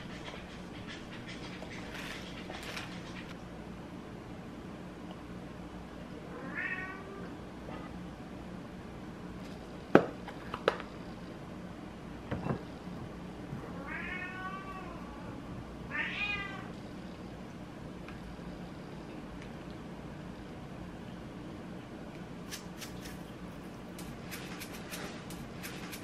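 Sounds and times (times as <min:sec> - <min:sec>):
cat meowing: 0:06.3 - 0:07.3, 0:13.8 - 0:15.3, 0:15.9 - 0:16.7.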